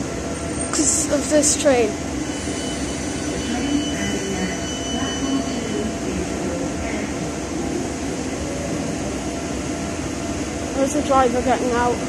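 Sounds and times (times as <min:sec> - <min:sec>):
train equipment hum and hiss: 0:00.0 - 0:12.0
faint steady tones: 0:00.2 - 0:12.0.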